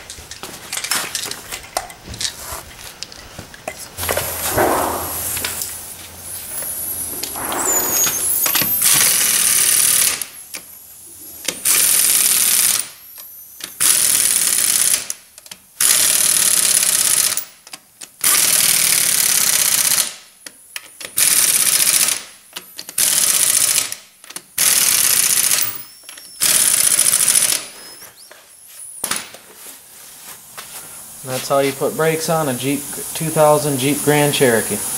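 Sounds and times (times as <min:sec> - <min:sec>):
impact wrench hammering: 0:04.5 - 0:05.4.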